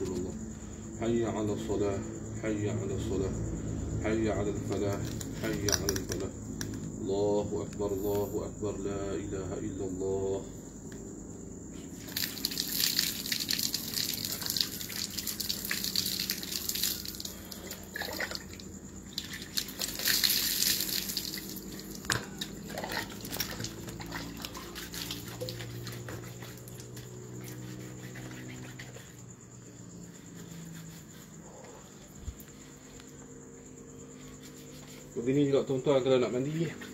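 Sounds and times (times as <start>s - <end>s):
water splashing onto concrete: 12.0s - 27.1s
water dripping: 12.0s - 27.4s.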